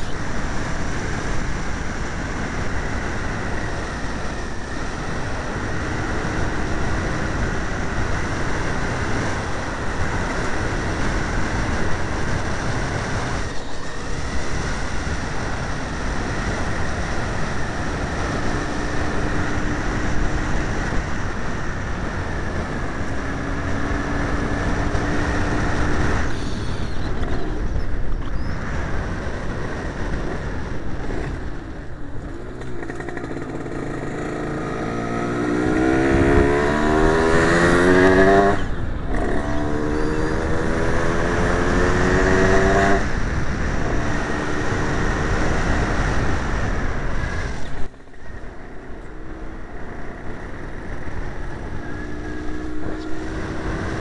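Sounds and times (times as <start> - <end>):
moped two-stroke engine running: 32.3 - 34.6.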